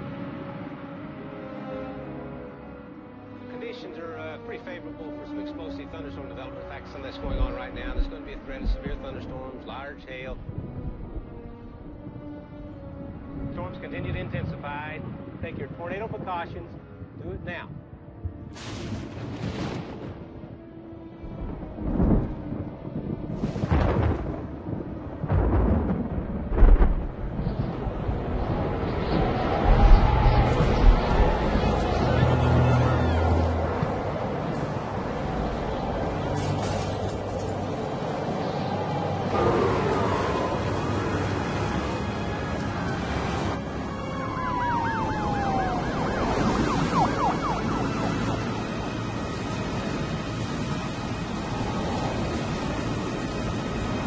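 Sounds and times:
thunder rumbling: 7.0 - 13.5, 18.0 - 54.0
loud thunder claps: 18.5 - 20.5, 21.3 - 32.6
steady rushing noise: 21.2 - 54.0
falling siren tone: 27.4 - 36.9, 37.9 - 53.6
police siren yelp: 28.6 - 34.9, 38.3 - 50.0.

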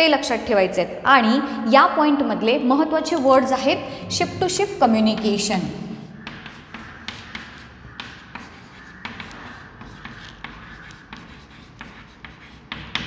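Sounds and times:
chalk scratching on chalkboard: 6.2 - 13.0
chalk tapping on board: 6.2 - 13.0.

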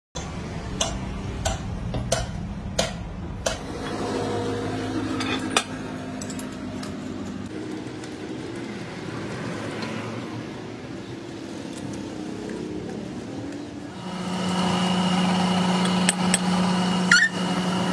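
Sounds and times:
machine motor humming: 13.9 - 17.9.

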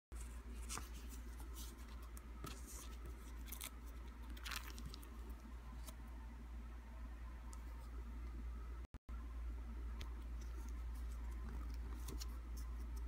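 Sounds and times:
steady low hum: 0.1 - 13.0
plastic sleeves crinkling: 0.2 - 6.0.

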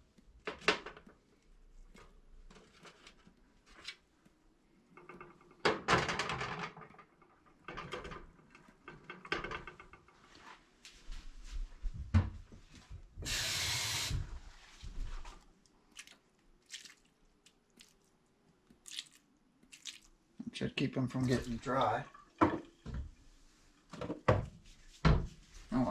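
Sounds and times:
clattering and knocking in a glass dish: 7.7 - 10.0, 22.1 - 23.1
steady hiss: 13.2 - 14.3.

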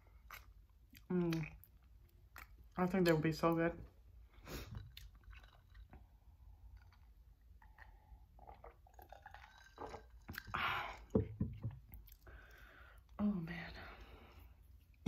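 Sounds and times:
chewing and mouth clicks: 0.1 - 3.3, 4.6 - 10.6, 11.8 - 12.6
gulping water: 4.7 - 11.4.

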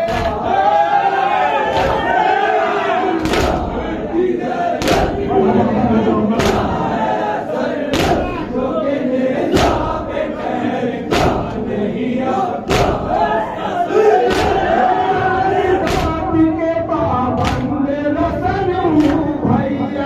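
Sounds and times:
unison chest-beating strikes: 0.0 - 0.7, 1.7 - 2.3, 3.2 - 4.1, 4.7 - 8.6, 9.4 - 11.9, 12.5 - 19.8
men chanting together: 0.0 - 20.0.

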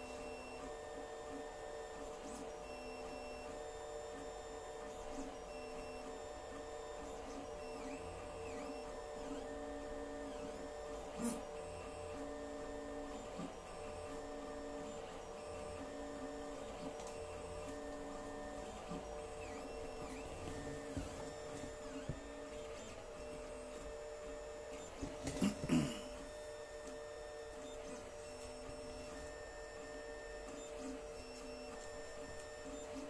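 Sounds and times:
stepper motors whining: 5.7 - 33.0
cooling fan hum: 7.0 - 33.0.

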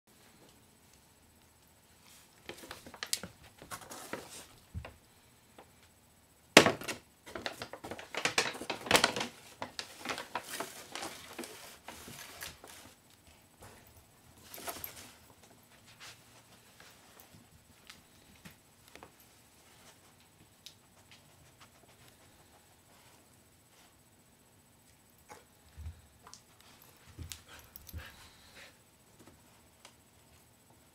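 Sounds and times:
paper bag rustling and crinkling: 2.5 - 4.6, 7.2 - 13.0.

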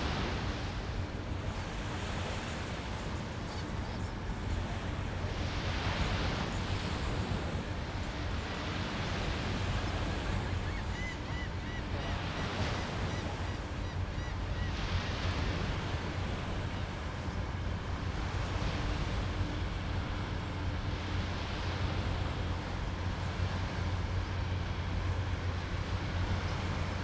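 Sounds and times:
surf washing onto beach: 0.0 - 13.7.

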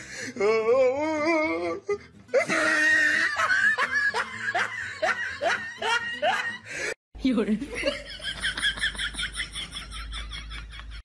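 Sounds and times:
background music: 0.0 - 11.0
person laughing hard: 2.4 - 6.8.

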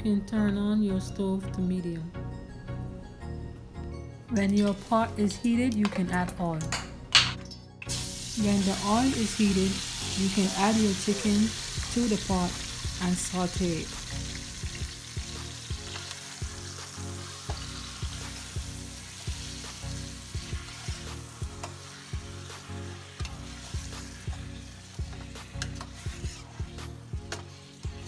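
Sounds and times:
chicken sizzling in hot oil: 7.9 - 28.0.

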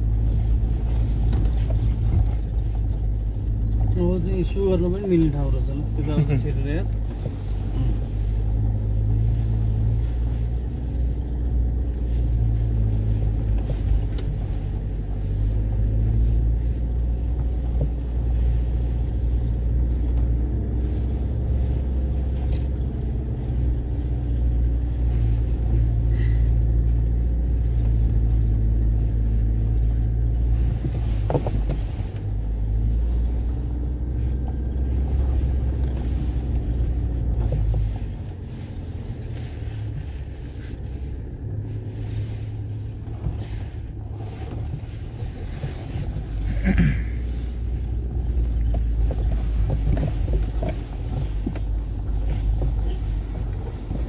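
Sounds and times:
car rumbling on dirt track: 0.0 - 54.0.

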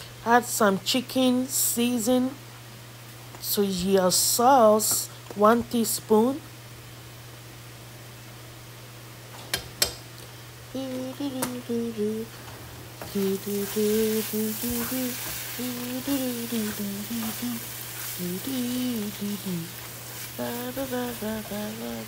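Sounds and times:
woman humming: 10.7 - 12.4, 13.1 - 22.0
sauce sizzling: 12.0 - 22.0.

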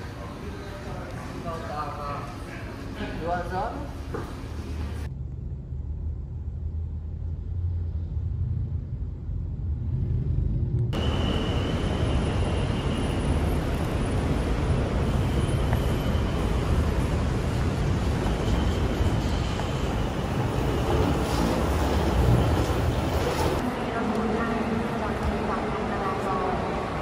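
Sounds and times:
muffled road rumble in car: 5.0 - 11.0.

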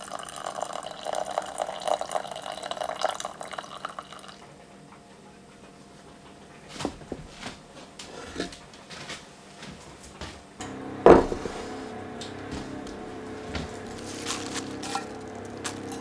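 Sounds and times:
liquid pouring into saucepan: 0.0 - 4.4
saucepan knocking on wooden board: 11.1 - 11.5.

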